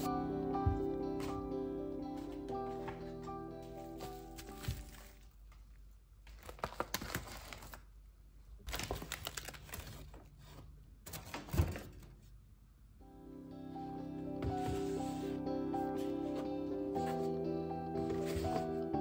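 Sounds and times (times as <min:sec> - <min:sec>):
plastic packaging crinkling: 0:04.0 - 0:05.5, 0:06.2 - 0:08.0, 0:08.6 - 0:10.3.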